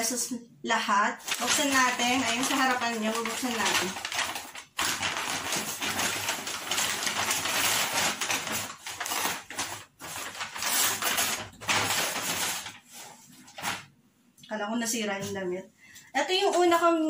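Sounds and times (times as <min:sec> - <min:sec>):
paper bag rustling: 0:01.2 - 0:14.0.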